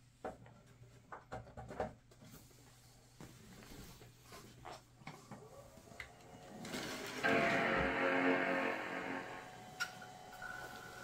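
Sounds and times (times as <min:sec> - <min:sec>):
computer hum: 0:05.9 - 0:11.0.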